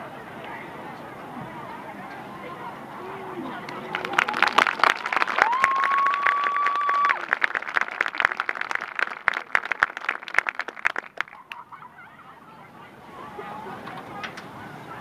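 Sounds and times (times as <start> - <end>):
audience applauding: 3.5 - 11.7.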